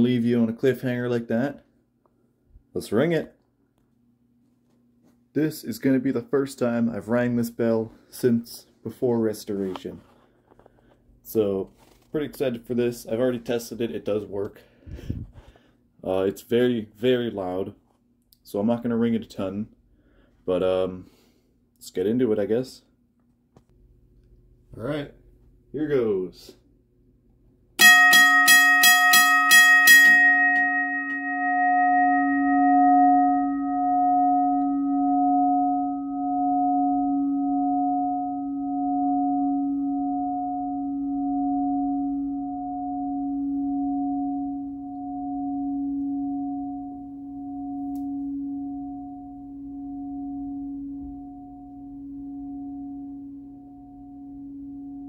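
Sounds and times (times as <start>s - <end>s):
crossing bell hammer striking gong: 27.8s - 55.0s
gong ringing with wavering pulse: 27.8s - 55.0s.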